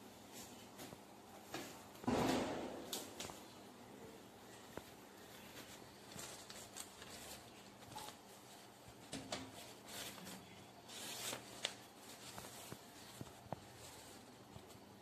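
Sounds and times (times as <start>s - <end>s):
paper rustling: 4.5s - 15.0s.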